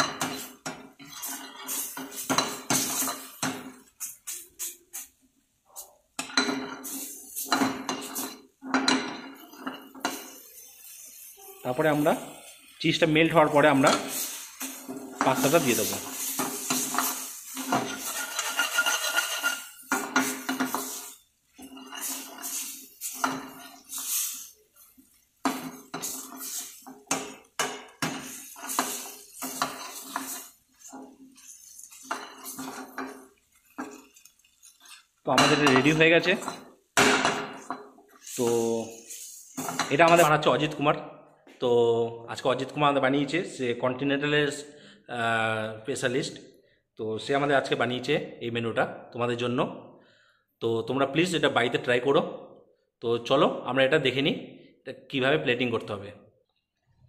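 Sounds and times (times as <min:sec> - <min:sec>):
ladle scraping metal frying pan: 0:00.0 - 0:04.0, 0:06.2 - 0:40.4.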